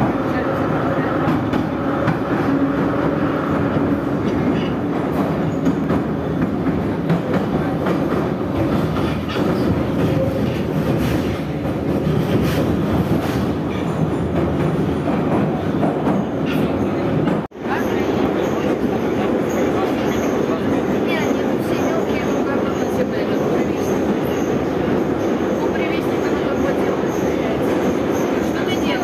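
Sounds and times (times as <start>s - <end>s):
train wheels rumbling on rail: 0.0s - 29.0s
train clicks: 1.2s - 17.5s.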